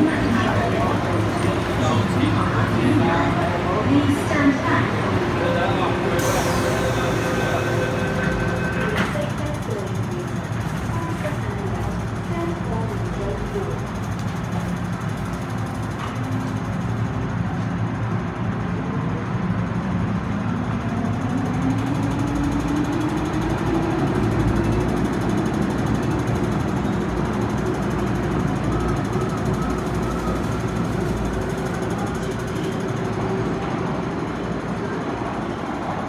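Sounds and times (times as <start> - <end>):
wheels rumbling on rail: 0.0 - 36.0
electric train motor whine: 0.1 - 9.8.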